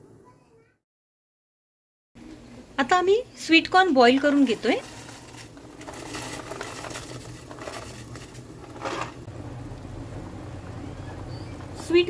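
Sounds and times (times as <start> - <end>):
water boiling in a pot: 3.5 - 12.0.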